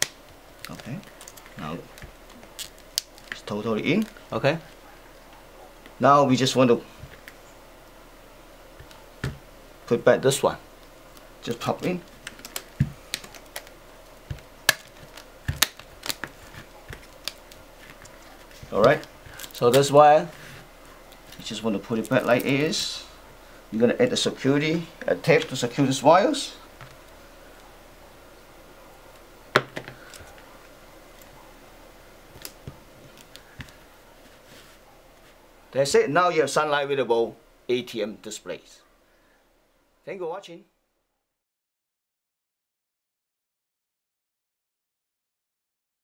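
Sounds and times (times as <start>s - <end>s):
faint room hiss: 0.0s - 41.4s
plastic parts snapping: 12.2s - 19.9s.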